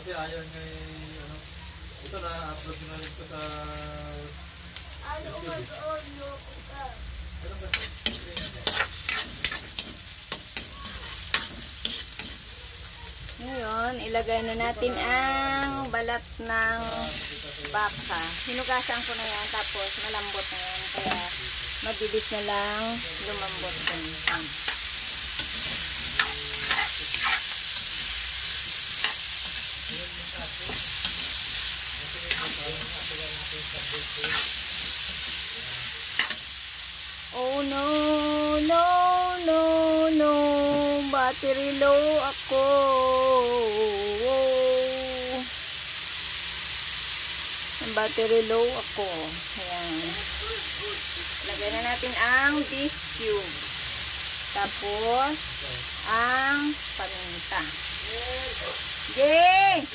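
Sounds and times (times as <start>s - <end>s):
food sizzling in hot oil: 0.0s - 59.9s
spatula scraping a wok: 7.6s - 12.9s, 16.8s - 36.8s.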